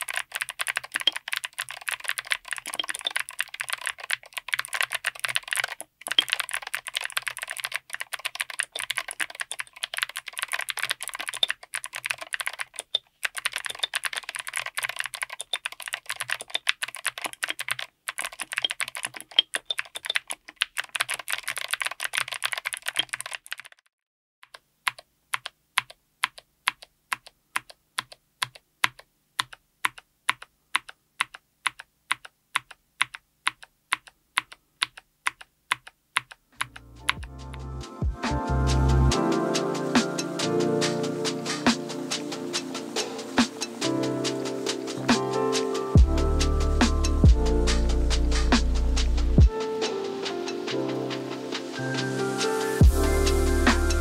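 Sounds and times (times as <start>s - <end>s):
mechanical keyboard typing: 0.0s - 37.6s, 38.2s - 54.0s.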